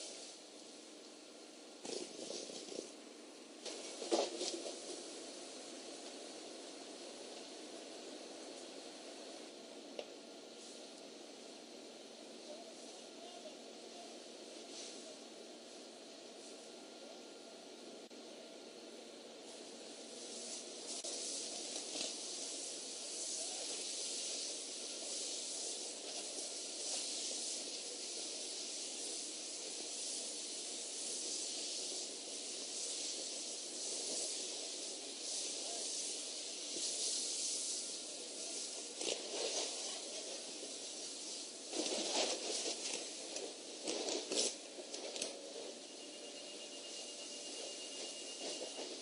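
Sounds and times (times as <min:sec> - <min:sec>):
fire crackling and popping: 0:00.0 - 0:11.5, 0:20.0 - 0:45.8
large fire rushing hiss: 0:10.5 - 0:15.8, 0:19.4 - 0:49.0.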